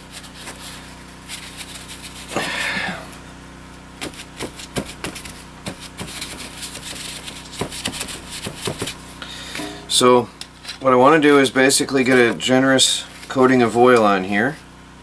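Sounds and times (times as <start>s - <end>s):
paper towel rubbing frying pan: 0.0s - 2.5s, 4.2s - 9.1s
faint steady hum: 0.0s - 14.6s.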